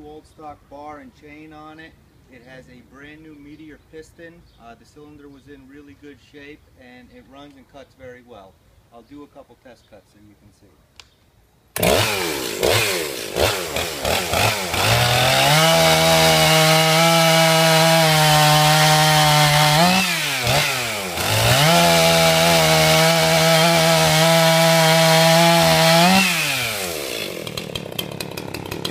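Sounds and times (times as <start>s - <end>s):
chainsaw cutting log: 11.8s - 28.9s.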